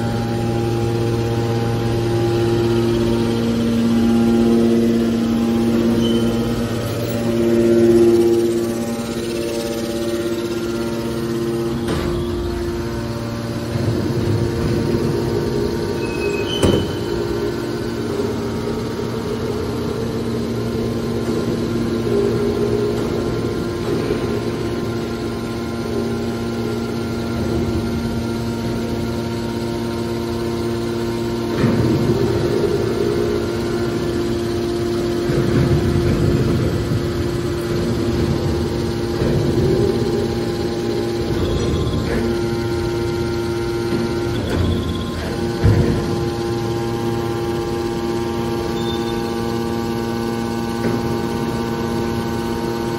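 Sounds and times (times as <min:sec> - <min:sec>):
hydraulic pump humming: 0:00.0 - 0:52.9.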